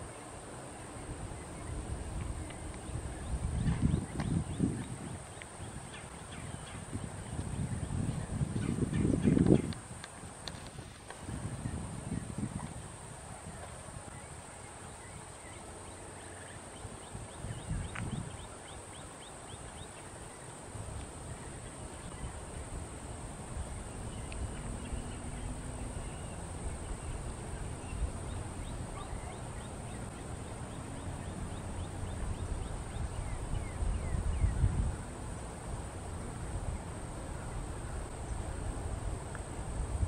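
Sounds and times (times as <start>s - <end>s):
wind rumble on microphone: 0.0s - 15.6s, 16.7s - 40.0s
high insect drone: 0.0s - 40.0s
distant bird calls: 23.6s - 35.1s.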